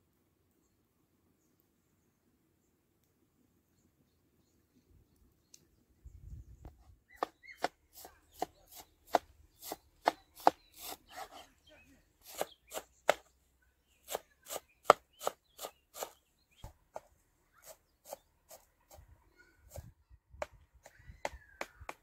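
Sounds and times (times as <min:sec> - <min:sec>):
knife chopping on wooden board: 0:07.2 - 0:11.4, 0:12.2 - 0:13.3, 0:14.1 - 0:16.2.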